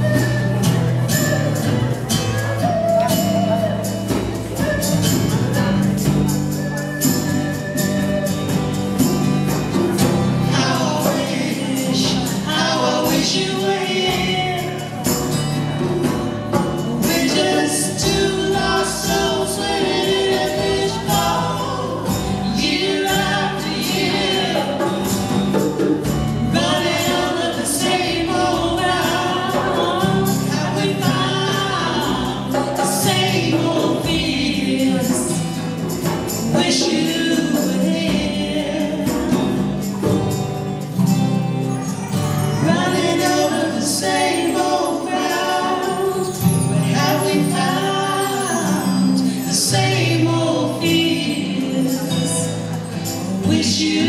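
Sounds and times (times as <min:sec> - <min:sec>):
acoustic guitar: 0:00.0 - 0:54.0
hand percussion: 0:00.0 - 0:54.0
voices singing: 0:00.0 - 0:54.0.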